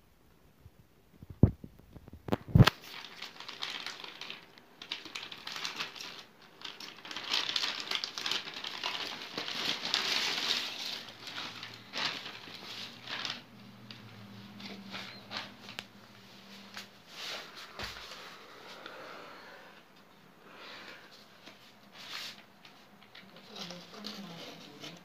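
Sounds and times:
plastic bag crinkling: 0:01.9 - 0:18.1.

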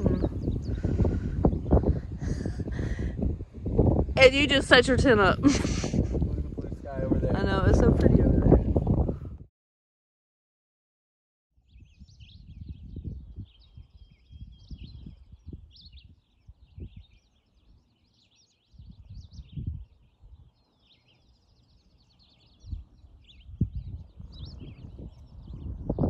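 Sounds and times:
songbirds singing: 0:00.0 - 0:09.1, 0:11.6 - 0:26.0
low rumbling: 0:00.0 - 0:09.5.

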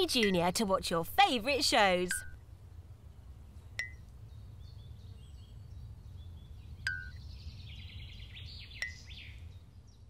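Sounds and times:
birds chirping and trilling: 0:01.6 - 0:10.0
click-and-ping sounds: 0:02.1 - 0:02.4, 0:03.8 - 0:04.2, 0:06.8 - 0:07.2, 0:08.8 - 0:09.0.

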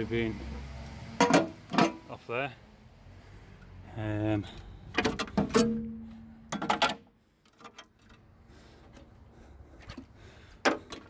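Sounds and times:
hand rummaging among metal parts: 0:04.9 - 0:07.0.

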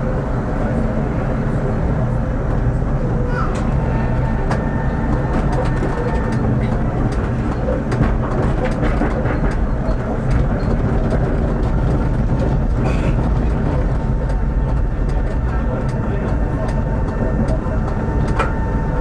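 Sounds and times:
tram humming: 0:00.0 - 0:19.0
wheels clicking over rail joints: 0:04.5 - 0:18.6.

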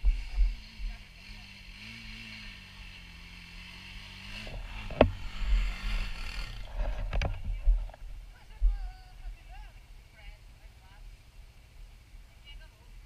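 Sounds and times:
dirt bike engine idling: 0:00.0 - 0:13.0
bumping: 0:04.3 - 0:08.9.

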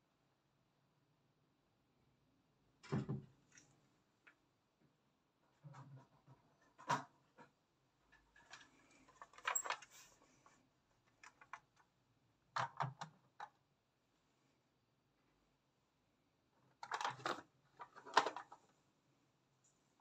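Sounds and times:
plastic toys clicking and knocking: 0:08.1 - 0:09.9, 0:11.0 - 0:11.9, 0:12.5 - 0:13.6, 0:16.6 - 0:18.6.

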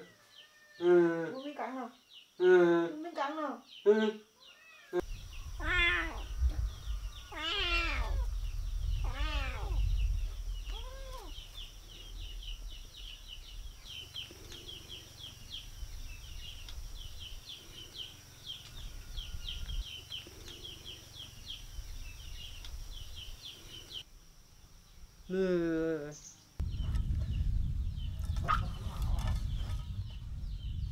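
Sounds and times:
kitten meowing: 0:05.6 - 0:06.3, 0:07.3 - 0:08.3, 0:09.0 - 0:09.8, 0:10.7 - 0:11.4.

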